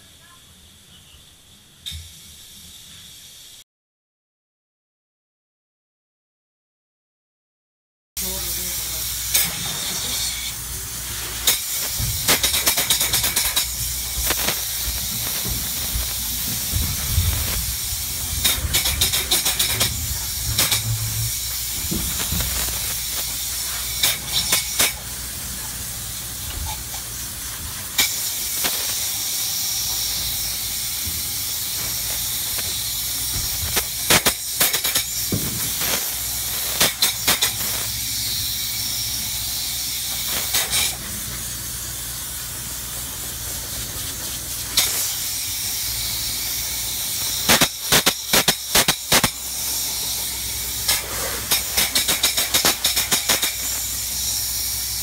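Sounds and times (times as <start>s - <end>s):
spray foam gun hissing: 1.8s - 3.6s, 8.2s - 55.0s.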